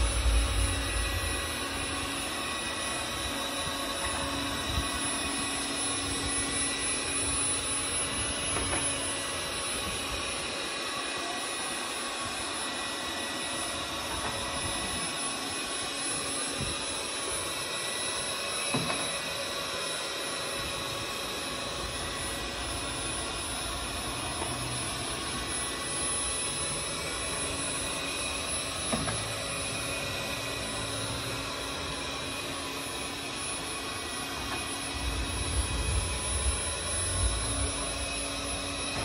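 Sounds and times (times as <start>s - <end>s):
robot suction fan whirring: 0.0s - 10.9s, 20.5s - 39.0s.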